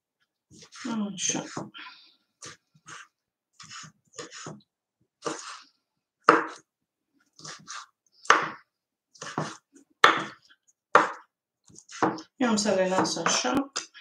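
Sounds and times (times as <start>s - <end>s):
knife chopping on wooden board: 6.2s - 6.6s, 7.4s - 8.6s, 9.2s - 12.3s, 12.9s - 13.4s.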